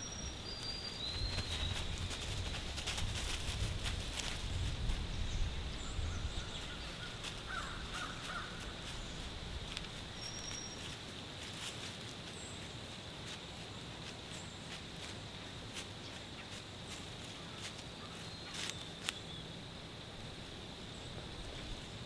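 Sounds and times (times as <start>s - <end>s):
footsteps crunching dry leaves: 1.0s - 5.1s, 6.5s - 19.3s.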